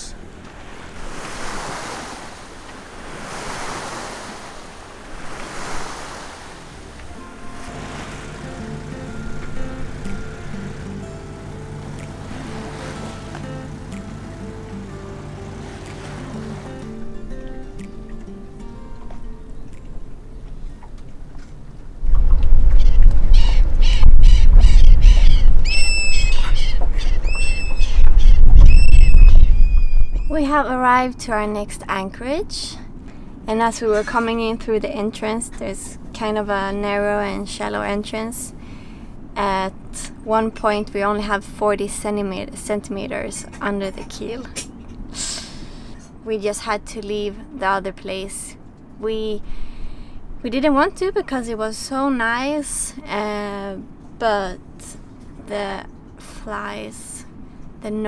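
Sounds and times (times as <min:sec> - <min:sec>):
water splashing along hull: 0:00.0 - 0:30.4
wind buffeting microphone: 0:20.5 - 0:30.6
harsh bird squawks: 0:22.8 - 0:30.3
rising whistled bird note: 0:22.8 - 0:30.3.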